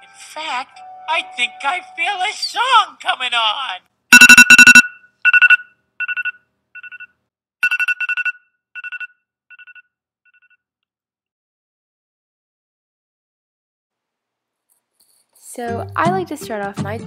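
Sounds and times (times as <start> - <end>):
phone alarm beeping: 4.1 - 9.8.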